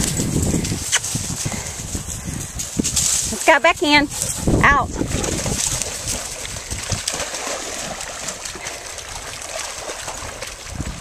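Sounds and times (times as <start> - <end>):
dogs splashing in water: 4.1 - 11.0.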